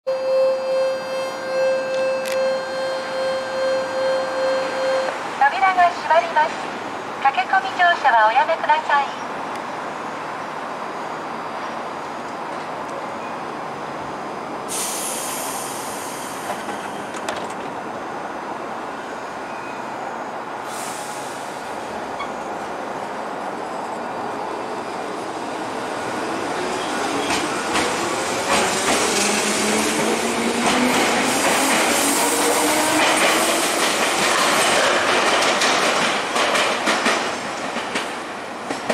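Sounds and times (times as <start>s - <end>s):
air hisses: 14.7s - 16.7s
wheels clacking over rail joints: 27.2s - 31.9s, 32.9s - 38.9s.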